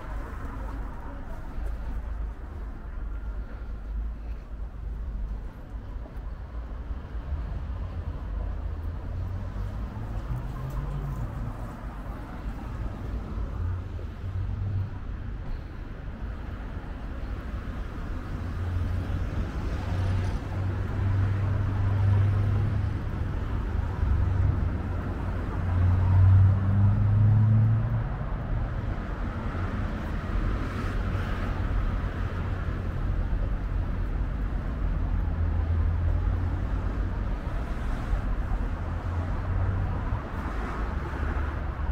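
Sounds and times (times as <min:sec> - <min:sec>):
road traffic rumble: 0:00.0 - 0:41.9.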